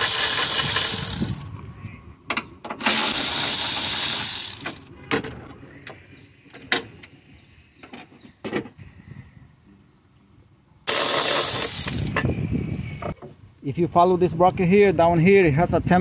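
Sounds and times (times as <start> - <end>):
ratchet wrench clicking: 0.0 - 1.5, 2.8 - 4.8, 10.9 - 12.2.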